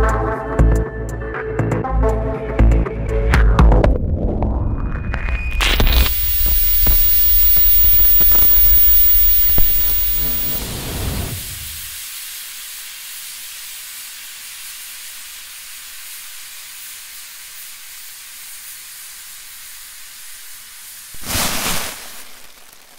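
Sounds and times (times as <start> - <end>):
loud burst of noise: 5.6 - 12.0
high-pitched hiss: 5.6 - 22.6.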